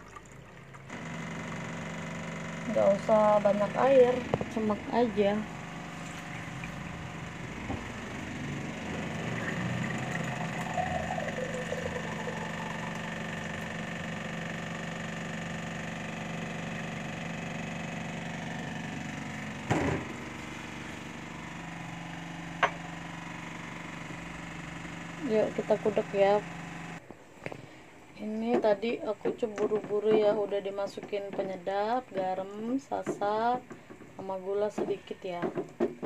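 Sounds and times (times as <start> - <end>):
water pouring into a glass: 0.0 - 0.9, 9.1 - 14.0
steady low hum: 0.1 - 28.2.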